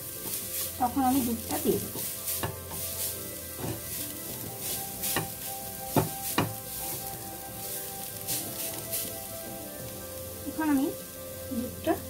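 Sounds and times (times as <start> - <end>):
carrots sizzling in a pan: 0.0 - 12.0
spatula striking a pan: 1.8 - 9.1.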